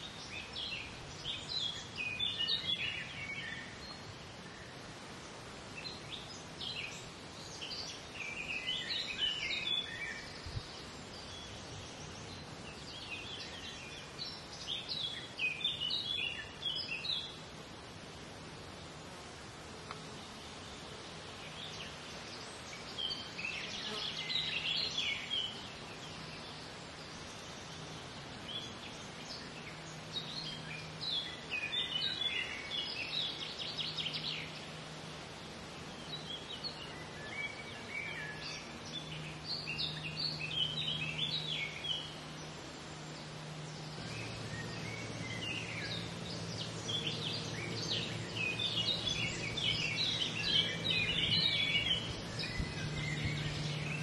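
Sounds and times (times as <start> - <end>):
birds chirping and trilling: 0.0 - 17.6, 20.1 - 54.0
steady low hum: 24.6 - 54.0
lower hum: 27.4 - 54.0.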